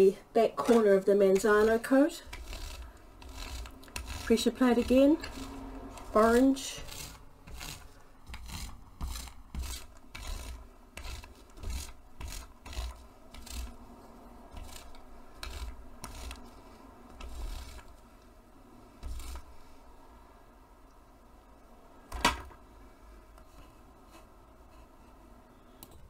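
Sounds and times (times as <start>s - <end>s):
ink roller rasping over fabric: 0.6s - 18.1s, 18.8s - 19.8s.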